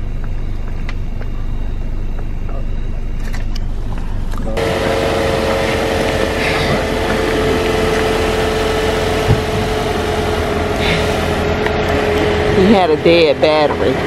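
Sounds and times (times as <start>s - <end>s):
steady whine: 0.0s - 14.0s
engine knock: 4.6s - 11.4s
car engine idling: 4.6s - 14.0s.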